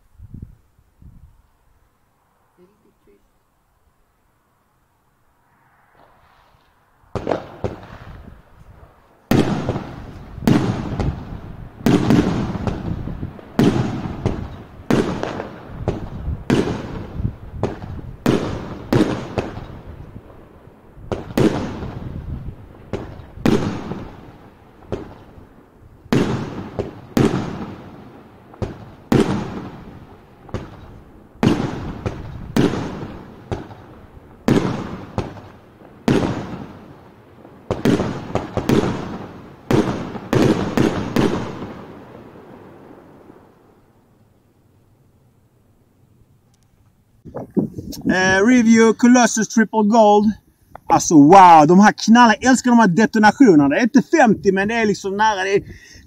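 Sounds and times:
fireworks bangs: 5.4 - 43.7.

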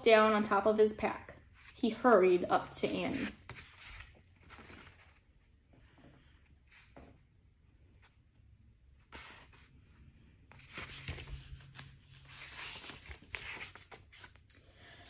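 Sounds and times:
book pages rustling: 2.8 - 5.5, 9.0 - 9.8, 10.5 - 14.5.

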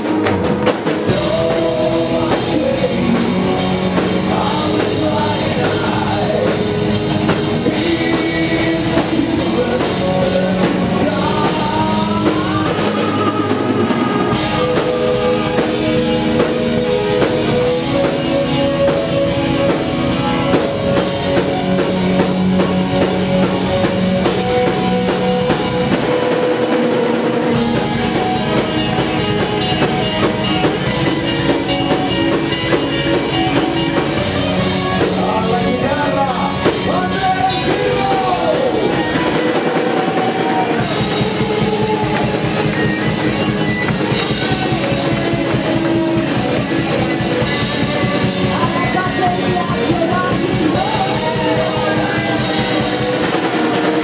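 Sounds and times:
drums and cymbals: 0.0 - 54.0
electric guitar: 0.0 - 54.0
female lead vocal: 7.6 - 14.7, 48.4 - 53.2.

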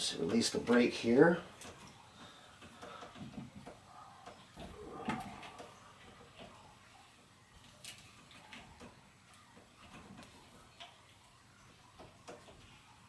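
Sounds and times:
faint clicks and knocks of bicycle parts: 0.0 - 13.0.

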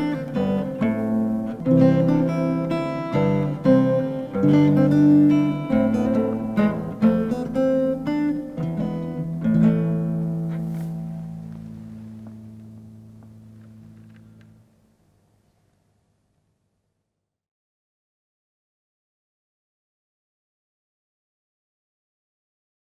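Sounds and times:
solo plucked string instrument: 0.0 - 14.6.

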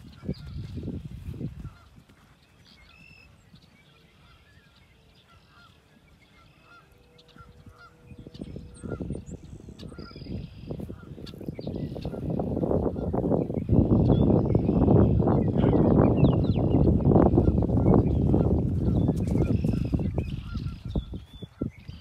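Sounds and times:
geese honking: 5.1 - 9.1.

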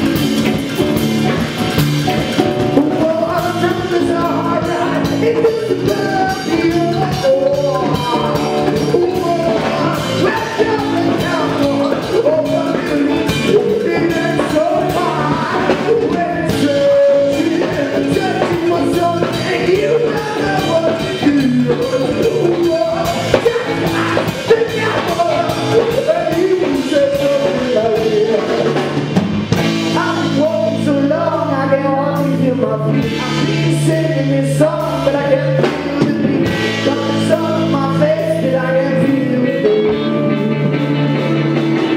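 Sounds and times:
drum kit: 0.0 - 41.9
electric guitar: 0.0 - 41.9
man singing: 0.0 - 41.9.

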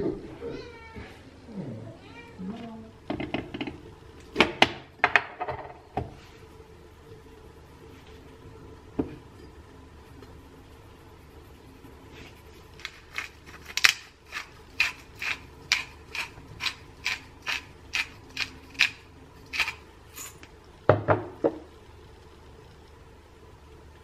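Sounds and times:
pepper grinder clicking: 12.8 - 20.4.

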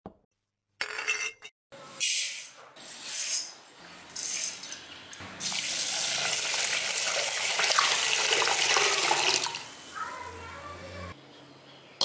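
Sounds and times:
tap water running into pot: 5.4 - 9.7.

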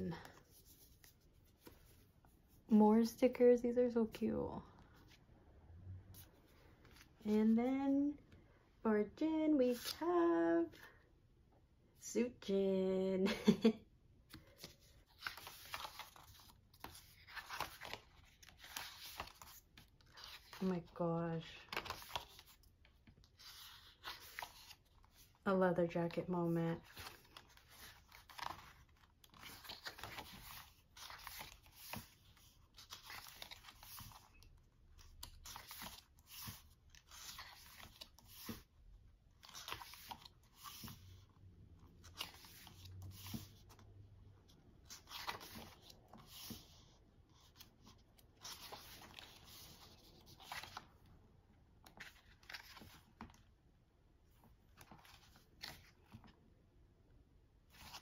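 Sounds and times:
glossy pages being turned: 14.3 - 21.0, 21.6 - 25.4, 26.8 - 38.7, 39.4 - 41.4, 42.0 - 43.8, 44.8 - 51.1, 51.8 - 53.4, 54.7 - 56.4, 57.7 - 58.0.

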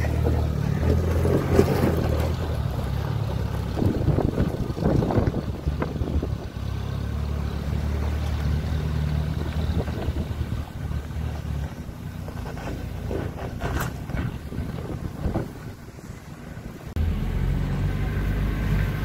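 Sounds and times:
off-road vehicle engine droning: 0.0 - 19.0
wind rumbling on microphone: 1.3 - 6.8, 9.2 - 16.9.

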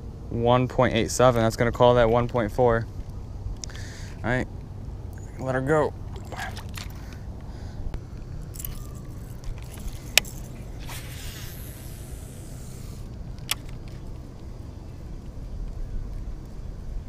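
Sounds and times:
spool whirring paying out line: 8.4 - 13.2
fishing reel clicks: 8.6 - 13.8.

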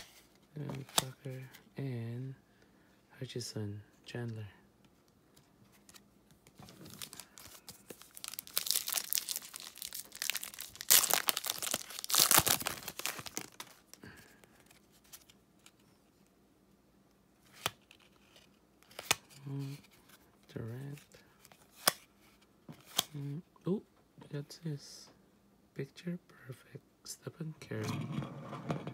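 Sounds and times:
foil wrapper tearing and crinkling: 6.8 - 13.9.

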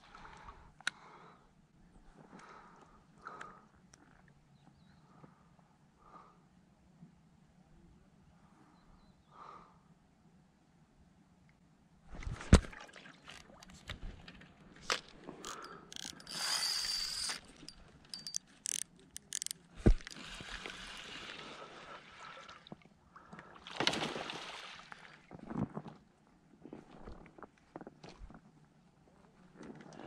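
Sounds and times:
fishing reel clicks and rattles: 14.9 - 20.2
fishing reel whirring: 15.4 - 20.2.

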